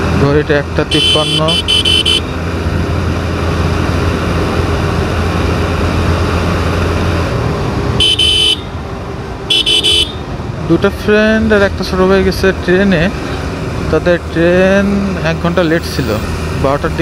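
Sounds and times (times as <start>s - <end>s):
short high horn beeps: 1.0s - 2.3s.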